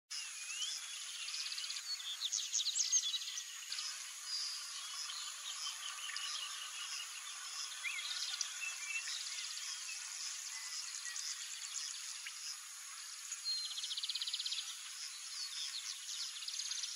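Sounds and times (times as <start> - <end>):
birds chirping and whistling: 0.2 - 12.5.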